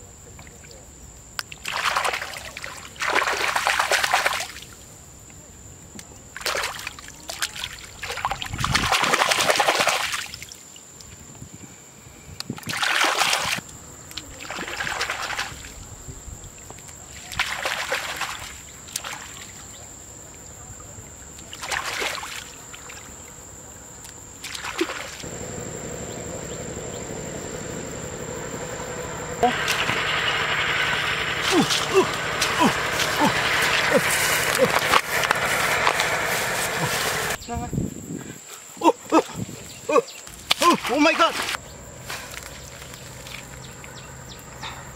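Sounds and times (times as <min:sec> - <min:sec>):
hands splashing in muddy water: 0:24.4 - 0:25.2
steady low hum: 0:25.2 - 0:37.4.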